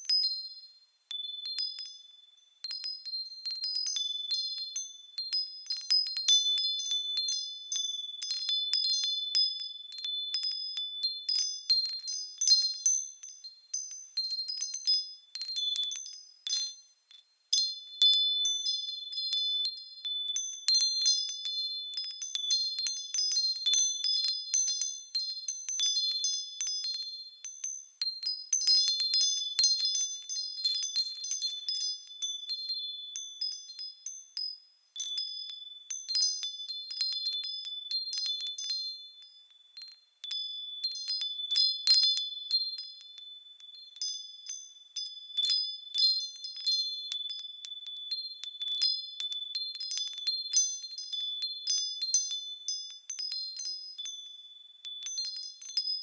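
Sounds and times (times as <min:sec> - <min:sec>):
metal chime bells tinkling: 0:00.0 - 0:56.0.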